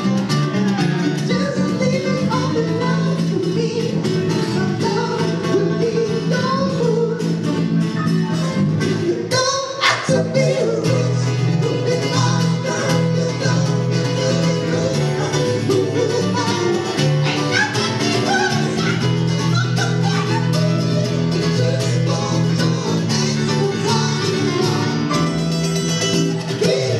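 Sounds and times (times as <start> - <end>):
person singing: 0.0 - 7.7, 8.8 - 26.9
acoustic guitar: 0.0 - 26.9
electric bass guitar: 0.0 - 26.9
keyboard: 0.0 - 26.9.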